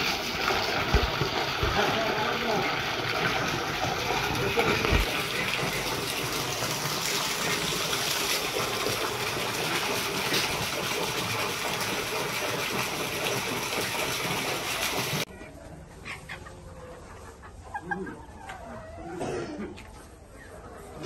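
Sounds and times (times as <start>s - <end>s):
water jet splashing into pool: 0.0s - 15.3s.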